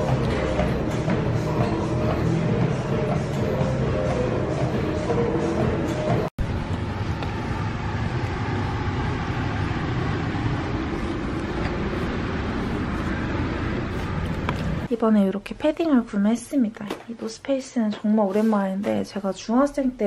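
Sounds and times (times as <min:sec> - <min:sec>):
background music: 0:00.0 - 0:06.3
traffic rumble: 0:00.0 - 0:15.7.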